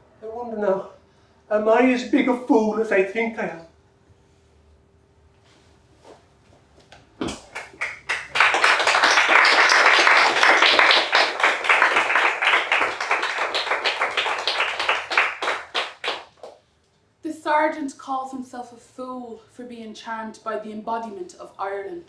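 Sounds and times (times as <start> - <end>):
audience applauding: 7.5 - 16.5.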